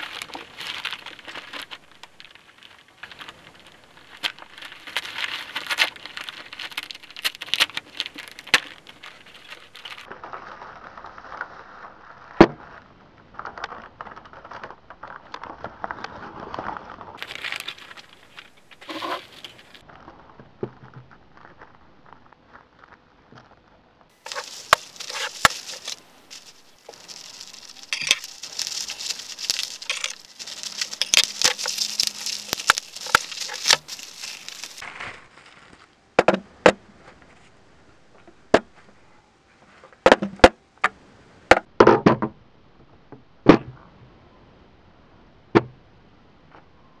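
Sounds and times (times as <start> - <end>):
plastic bag crinkling: 0.0 - 19.9, 24.2 - 35.8.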